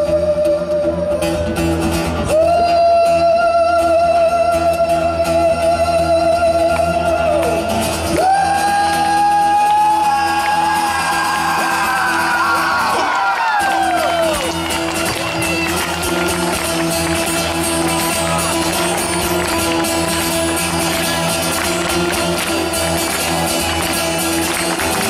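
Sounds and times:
acoustic guitar: 0:00.0 - 0:25.0
rock band through pa: 0:00.0 - 0:25.0
man singing long notes: 0:02.2 - 0:14.4.

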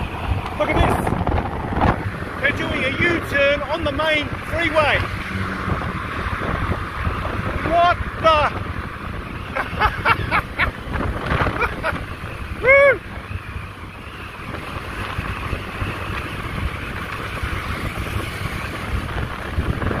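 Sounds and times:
scooter road noise: 0:00.0 - 0:20.0
wind on microphone: 0:00.0 - 0:20.0.

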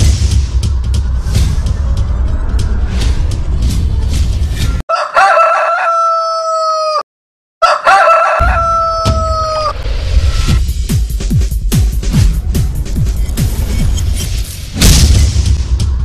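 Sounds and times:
rooster crowing: 0:04.9 - 0:09.8
music with heavy bass beat: 0:10.5 - 0:14.0.

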